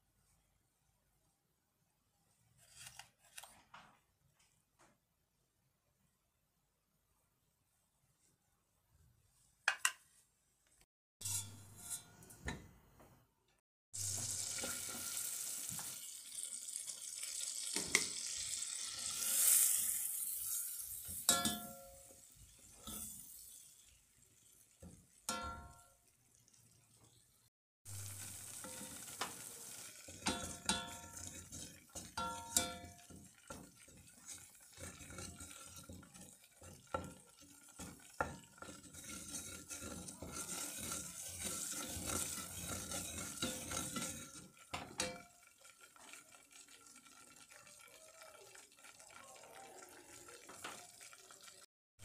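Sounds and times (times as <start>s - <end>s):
roux sizzling in metal pot: 11.2s - 12.6s, 14.0s - 51.7s
spoon scraping against pot: 11.2s - 12.6s, 19.0s - 23.7s, 28.3s - 45.4s.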